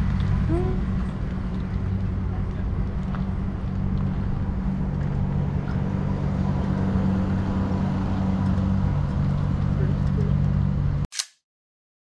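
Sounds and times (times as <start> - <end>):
engine idling: 8.4 - 11.0.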